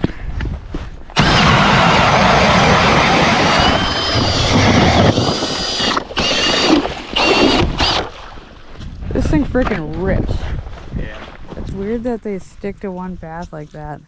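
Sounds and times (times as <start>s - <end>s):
ice auger grinding with motor whine: 1.2s - 8.1s.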